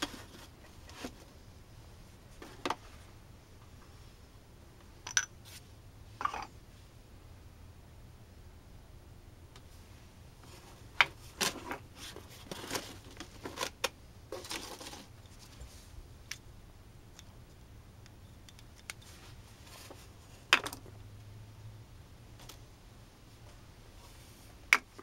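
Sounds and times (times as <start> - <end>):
cardboard rustling: 10.4 - 15.8.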